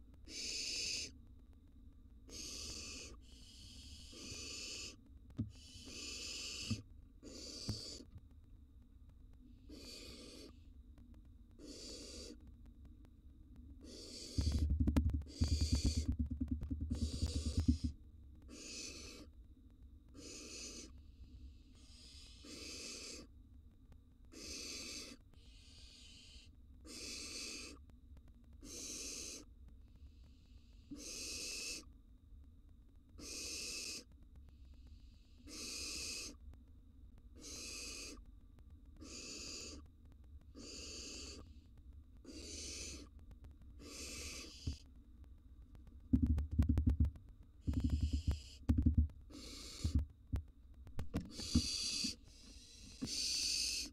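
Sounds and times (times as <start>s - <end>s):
owl hissing begging call: 0.2s - 1.2s, 2.3s - 8.1s, 9.6s - 10.6s, 11.6s - 12.4s, 13.8s - 14.7s, 15.3s - 16.1s, 16.9s - 17.9s, 18.5s - 19.4s, 20.1s - 23.3s, 24.3s - 27.8s, 28.6s - 29.5s, 30.1s - 31.9s, 33.2s - 34.1s, 34.7s - 36.4s, 37.4s - 38.2s, 39.0s - 39.9s, 40.5s - 41.6s, 42.2s - 43.1s, 43.8s - 44.9s, 47.6s - 48.7s, 49.3s - 50.0s, 51.3s - 53.9s.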